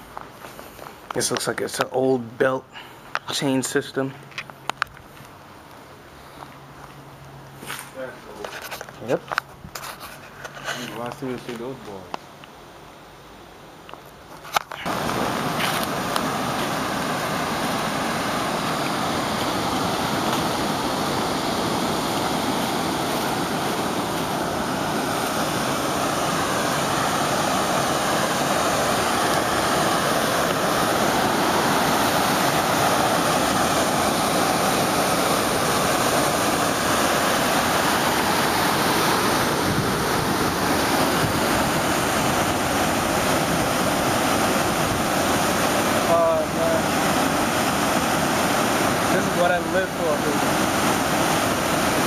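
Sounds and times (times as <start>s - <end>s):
water pouring over dam: 14.8s - 52.0s.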